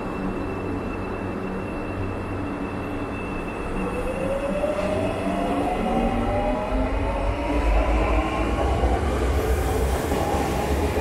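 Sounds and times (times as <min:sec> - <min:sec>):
train running noise: 0:00.0 - 0:11.0.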